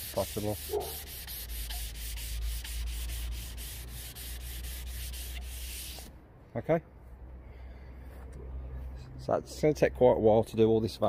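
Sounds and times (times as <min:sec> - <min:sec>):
sandpaper rubbing on metal: 0:00.0 - 0:06.1.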